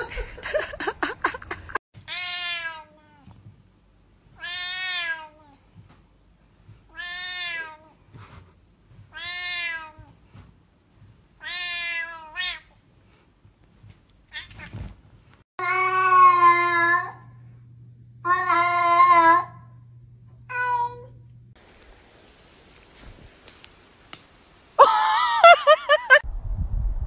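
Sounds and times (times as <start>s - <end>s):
cat meowing: 18.2s - 19.5s.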